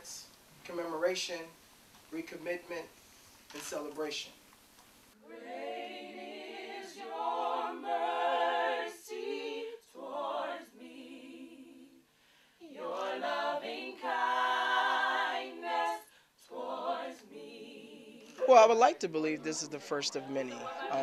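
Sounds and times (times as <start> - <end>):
vocal group singing a cappella: 0.0 - 0.3, 5.1 - 21.0.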